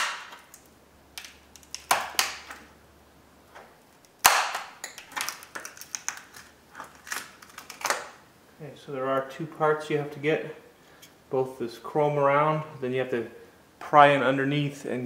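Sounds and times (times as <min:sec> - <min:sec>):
screwdrivers clicking and scraping: 0:04.8 - 0:08.0.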